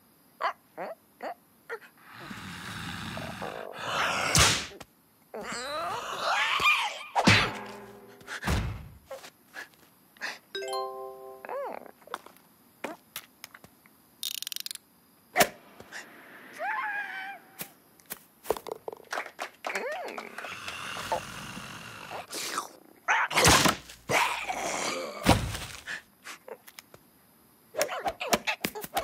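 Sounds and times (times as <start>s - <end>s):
sharp hit: 7.2s - 8.8s
heavy thunk: 7.2s - 9.0s
cartoon music: 10.6s - 11.8s.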